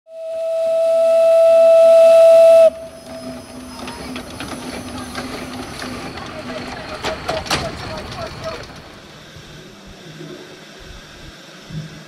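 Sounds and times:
steam locomotive whistle: 0.1s - 3.5s
steam hissing: 2.1s - 12.0s.

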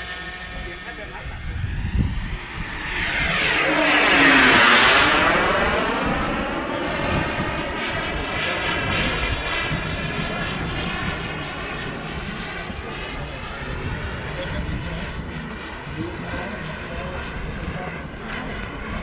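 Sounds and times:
model airplane engine flying past: 0.0s - 19.0s.

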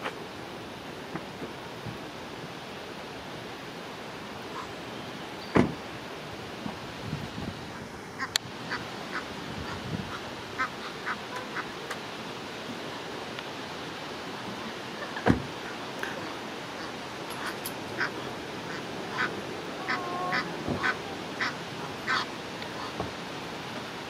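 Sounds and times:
dull thump: 5.5s - 5.8s, 15.2s - 15.5s
goslings peeping: 8.2s - 11.8s, 16.8s - 23.0s.

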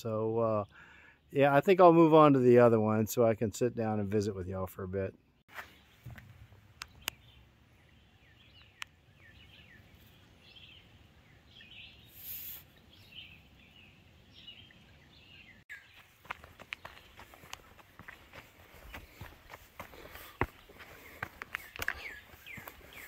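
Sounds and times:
birds chirping: 0.0s - 2.4s, 3.2s - 23.0s
brief hiss: 12.0s - 12.8s
footsteps on dirt trail: 15.7s - 23.0s.

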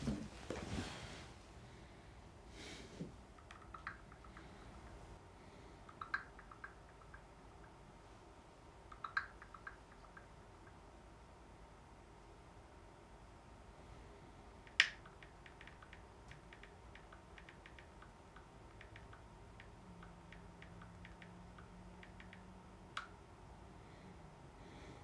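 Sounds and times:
faint typing taps: 14.7s - 23.1s
phone keyboard clicks: 14.7s - 23.1s.

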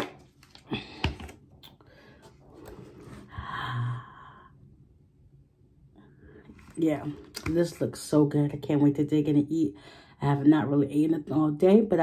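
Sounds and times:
plastic bottle handling: 0.0s - 1.4s.

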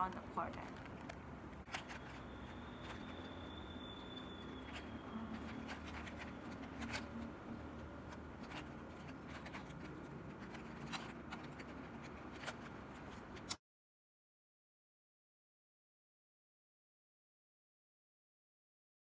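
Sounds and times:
puzzle cube plastic clicks: 0.0s - 13.6s.

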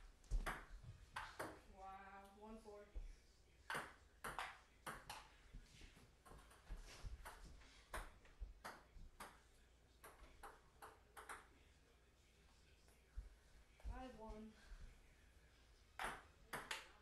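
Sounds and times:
ping-pong ball hits: 16.0s - 16.9s.

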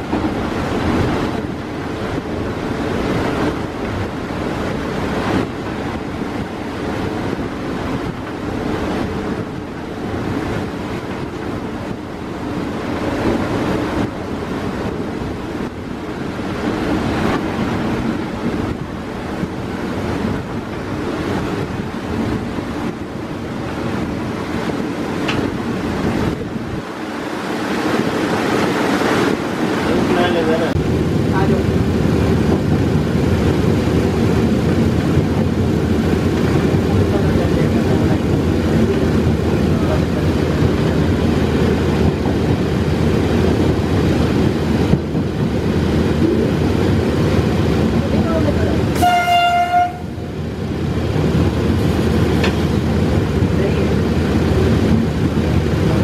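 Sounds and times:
locomotive engine and wheel rumble: 0.0s - 56.0s
wind rushing past window: 0.0s - 56.0s
wheels rolling on rails: 50.8s - 56.0s.

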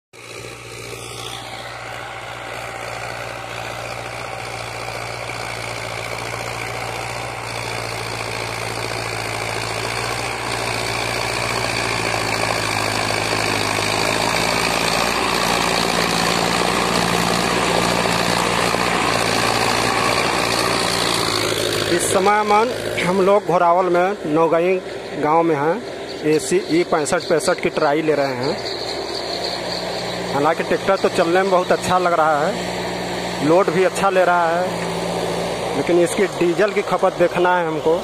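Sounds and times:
tractor diesel engine running: 0.1s - 38.0s.

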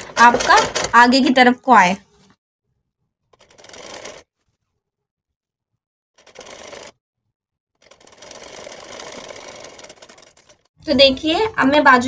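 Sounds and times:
sewing machine stitching: 0.0s - 1.1s, 3.3s - 4.3s, 6.2s - 7.0s, 7.8s - 10.7s.

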